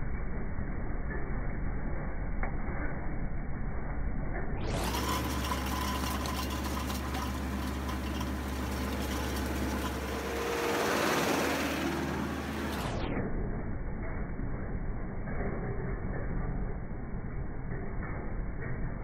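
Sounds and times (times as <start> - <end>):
tractor engine running: 4.6 - 13.2.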